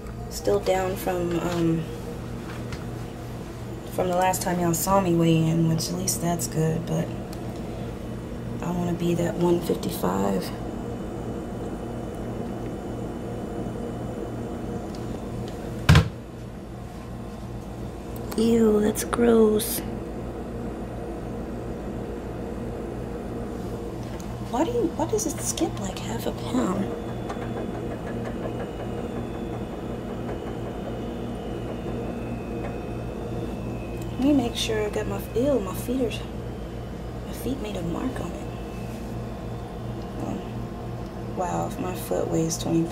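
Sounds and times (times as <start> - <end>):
low pulsing hum: 0.0 - 42.9
foot thump on bathroom scale: 15.8 - 16.2.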